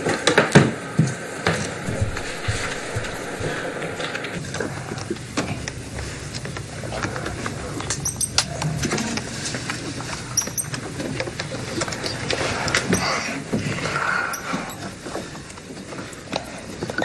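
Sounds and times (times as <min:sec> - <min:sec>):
mouse squeaking: 0:10.4 - 0:10.7.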